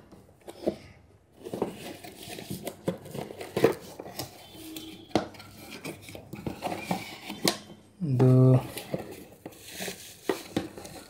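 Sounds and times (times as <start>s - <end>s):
cardboard box rustling and tapping: 1.4s - 4.4s, 8.7s - 11.0s.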